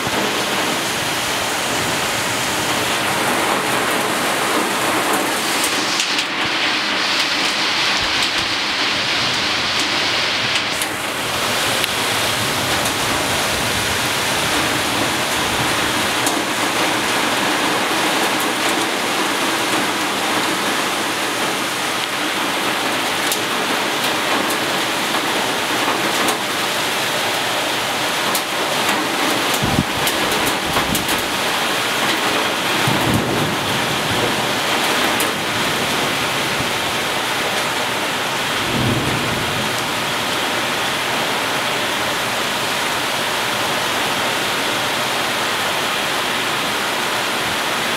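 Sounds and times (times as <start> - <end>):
heavy rain on foliage and roofs: 0.0 - 47.9
low thunder rumbles: 29.5 - 31.3, 32.7 - 41.4.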